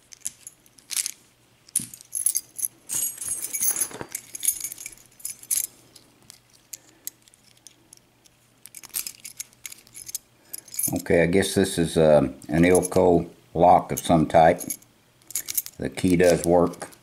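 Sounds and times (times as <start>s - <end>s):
keys jangling: 0.1s - 5.7s, 8.7s - 11.0s, 14.0s - 17.0s.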